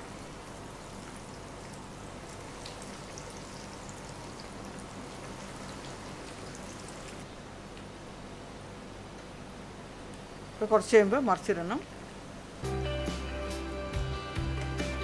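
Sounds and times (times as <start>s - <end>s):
food deep-frying in hot oil: 0.0s - 7.3s.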